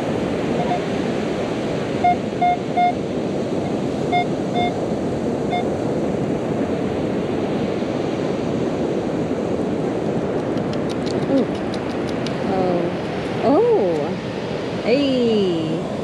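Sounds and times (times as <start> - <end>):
wind and surf: 0.0 - 16.0
metal detector beeping: 0.6 - 0.9, 2.0 - 3.0, 4.1 - 4.8.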